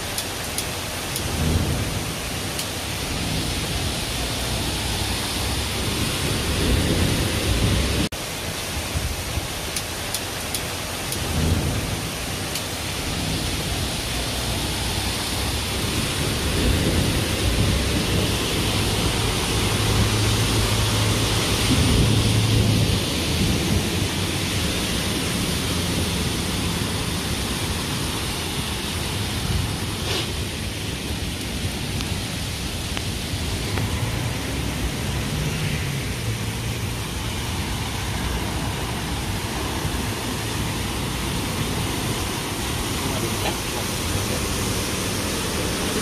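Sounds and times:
bus engine hum through water: 0.0 - 46.0
heavy rain on flooded street: 0.0 - 46.0.

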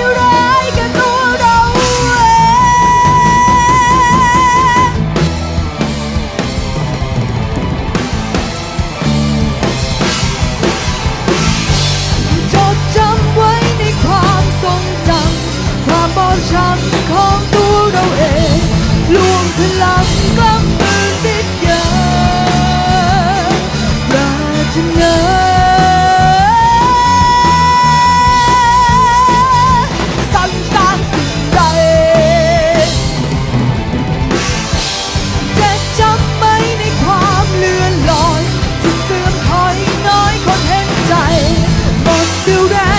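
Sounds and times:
girl singing lead: 0.0 - 5.0, 12.3 - 33.1, 35.5 - 42.9
rock band playing: 0.0 - 42.9.

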